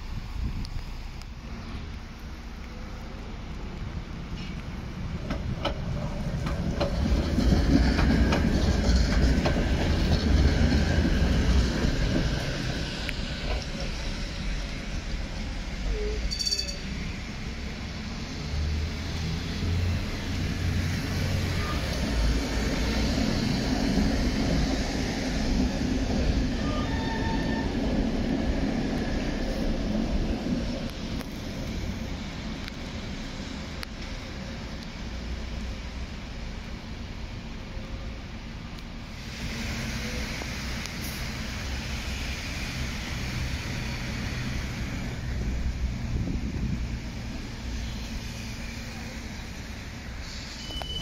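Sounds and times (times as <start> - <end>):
tram wheels rumbling on rails: 0.0 - 51.0
tram wheel squeal: 6.8 - 17.4, 21.1 - 29.8, 47.1 - 51.0.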